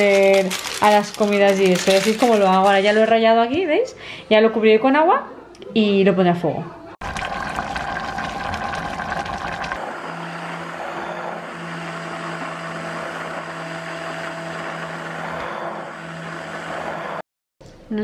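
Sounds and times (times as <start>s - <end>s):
immersion blender humming: 7.4s - 17.2s.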